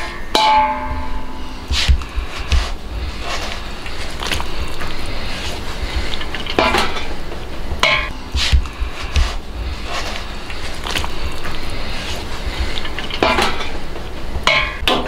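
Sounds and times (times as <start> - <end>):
metal utensils clanking on wok: 0.0 - 1.7, 5.0 - 8.4, 10.0 - 15.0
steady low rumble: 0.8 - 14.5.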